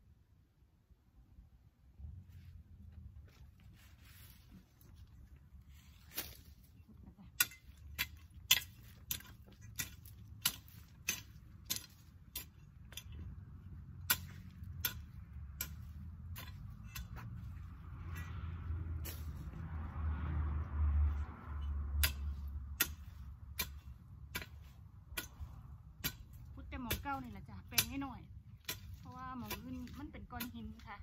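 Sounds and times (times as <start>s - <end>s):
low background rumble: 0.0s - 31.0s
hoe chopping into soil: 5.9s - 6.7s, 7.4s - 19.6s, 22.0s - 30.9s.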